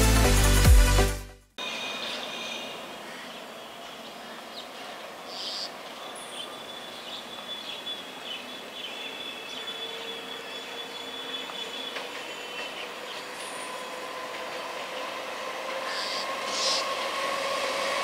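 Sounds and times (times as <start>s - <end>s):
outdoor background noise: 1.5s - 18.0s
faint bird chirps: 1.6s - 13.9s.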